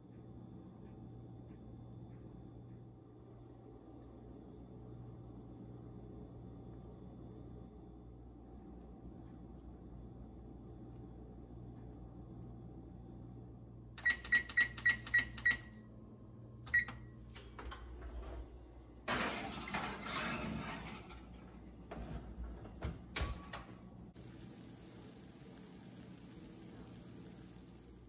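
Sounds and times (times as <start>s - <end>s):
appliance keypad beeps: 14.0s - 15.8s, 16.7s - 17.2s.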